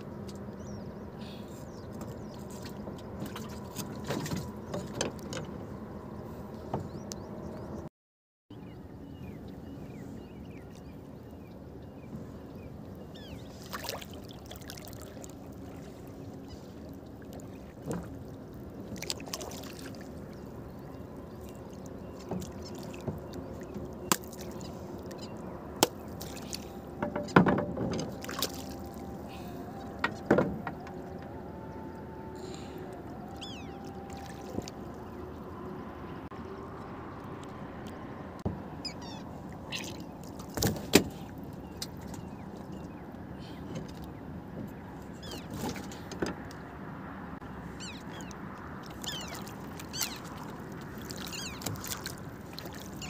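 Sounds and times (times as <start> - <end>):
water splashes: 2.0 - 5.4, 12.3 - 36.1, 38.9 - 46.5, 47.1 - 53.0
knocks and clicks on wooden boat: 27.0 - 28.5, 30.0 - 31.4, 40.6 - 41.1, 45.4 - 46.6.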